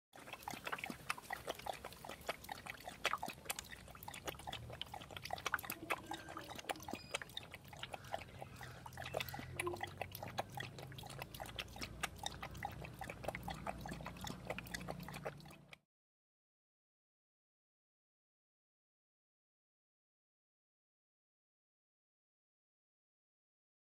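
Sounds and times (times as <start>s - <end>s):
dog lapping water: 0.1s - 15.8s.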